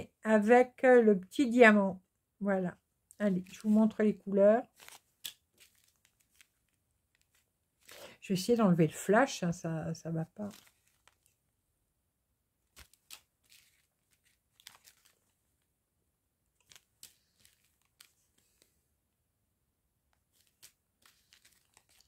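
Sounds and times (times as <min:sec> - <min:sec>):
plastic bags crinkling: 0:04.6 - 0:08.2, 0:10.4 - 0:11.4, 0:12.7 - 0:15.4, 0:16.6 - 0:18.7, 0:20.3 - 0:22.0.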